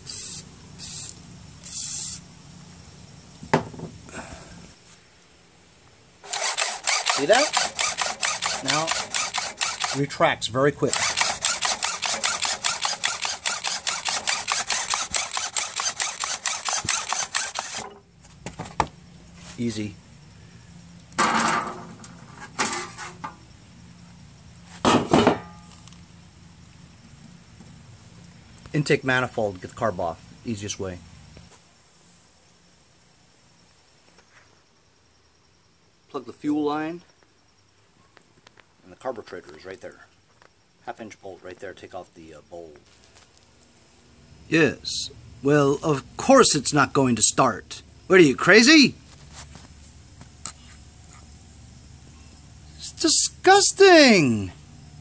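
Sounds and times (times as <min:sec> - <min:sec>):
aerosol spray hissing: 0:00.0 - 0:02.3.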